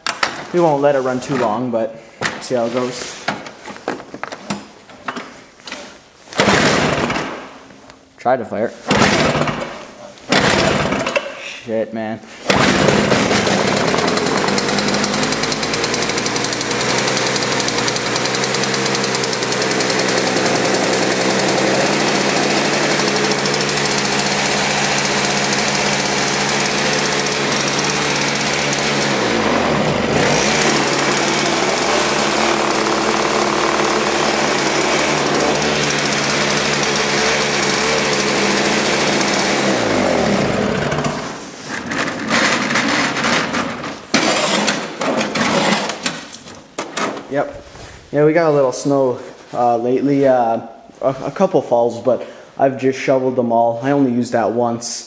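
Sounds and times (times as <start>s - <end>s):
snowblower engine running: 12.5s - 41.4s
rattles: 12.5s - 47.3s.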